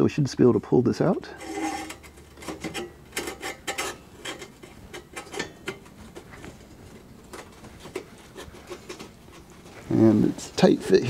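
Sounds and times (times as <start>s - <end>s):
ceramic scraping against metal: 1.2s - 6.3s.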